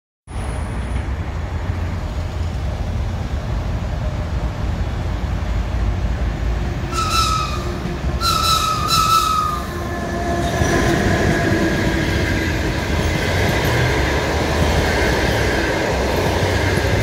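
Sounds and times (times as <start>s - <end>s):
high-pitched locomotive whistle: 6.9s - 11.1s.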